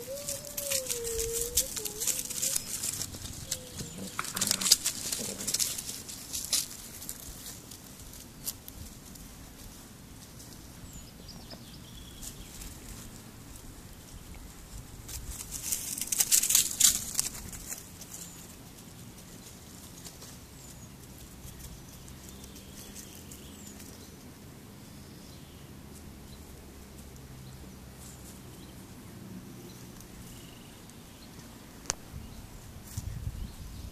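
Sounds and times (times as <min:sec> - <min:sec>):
dry rustling and crackling: 0:00.0 - 0:11.2, 0:12.1 - 0:24.3
faint rustles: 0:00.0 - 0:25.0, 0:25.8 - 0:33.9.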